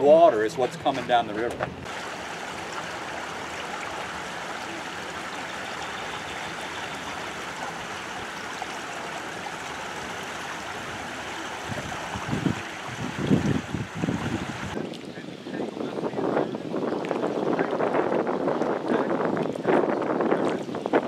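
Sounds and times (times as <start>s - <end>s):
water rushing over screens: 0.0s - 14.8s
wind buffeting microphone: 0.0s - 21.0s.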